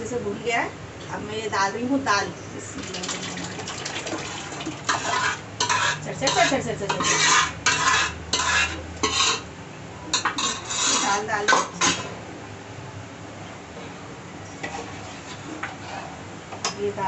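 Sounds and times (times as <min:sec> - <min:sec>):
wet food pouring and scraping: 0:02.8 - 0:06.0.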